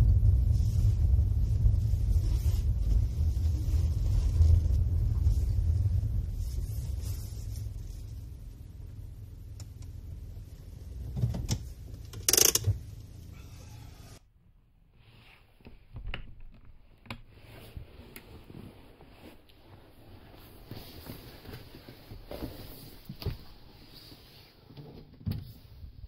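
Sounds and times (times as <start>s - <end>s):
van engine idling: 0.0s - 14.2s.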